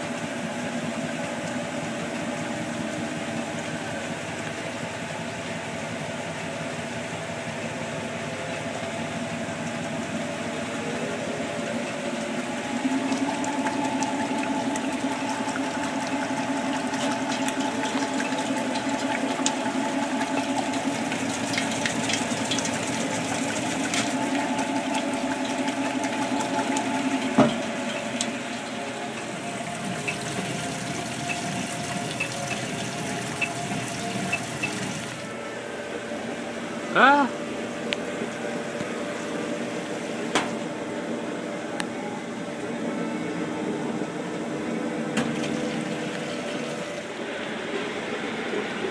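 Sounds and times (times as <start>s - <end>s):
washing machine motor hum: 0.0s - 48.9s
water pouring and splashing: 7.5s - 35.3s, 45.1s - 47.2s.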